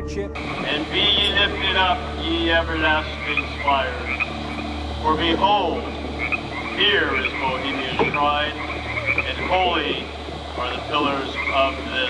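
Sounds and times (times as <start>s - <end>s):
low hum: 0.0s - 12.0s
man chanting over loudspeaker: 0.7s - 4.1s, 5.1s - 5.9s, 6.8s - 8.6s, 9.3s - 12.0s.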